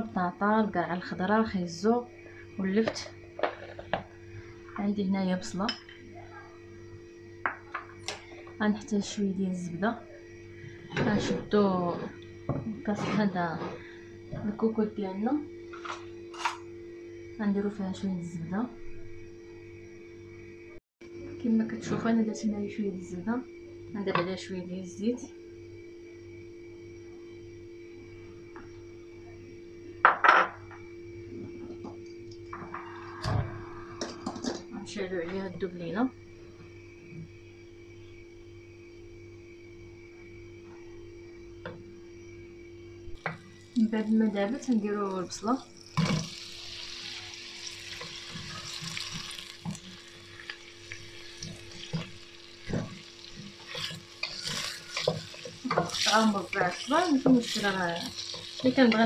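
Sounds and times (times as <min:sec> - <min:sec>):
steady hum: 0:00.0 - 0:59.0
onion sizzling in a pot: 0:43.2 - 0:59.0.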